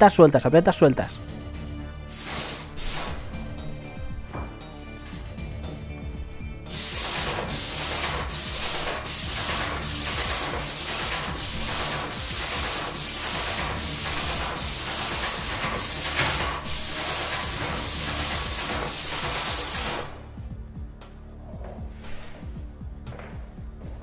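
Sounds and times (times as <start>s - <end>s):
paint sprayer hissing: 2.1s - 3.4s, 6.6s - 20.3s.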